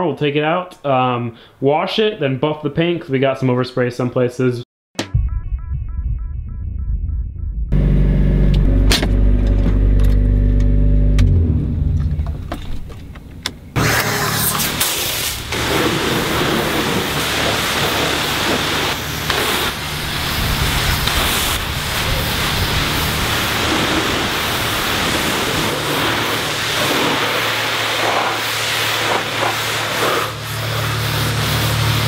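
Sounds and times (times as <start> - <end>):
low hum: 5.1 - 14.6
pressure washer spraying water: 13.8 - 32.0.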